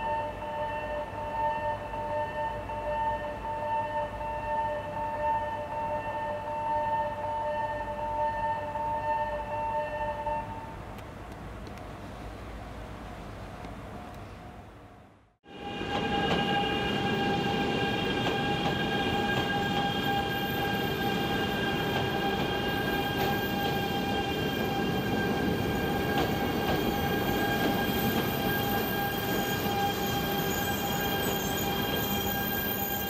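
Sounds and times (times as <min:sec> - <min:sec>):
train running noise: 0:15.5 - 0:33.0.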